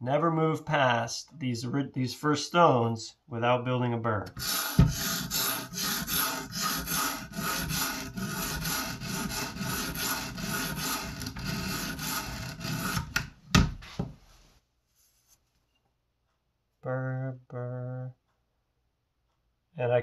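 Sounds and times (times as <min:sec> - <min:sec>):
sharp knocks: 0:04.4 - 0:05.4
sharpening stone rasping on knife: 0:04.4 - 0:13.1.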